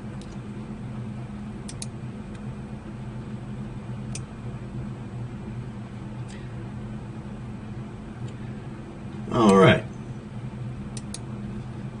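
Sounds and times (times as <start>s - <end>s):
low electrical hum: 0.0s - 12.0s
computer mouse clicking: 1.6s - 2.4s, 10.9s - 11.3s.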